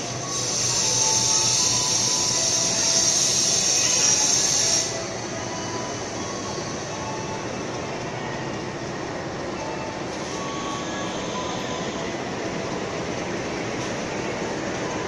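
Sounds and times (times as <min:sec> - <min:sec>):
train wheels rumbling on rails: 0:00.0 - 0:15.0
wheel squeals: 0:00.2 - 0:07.4.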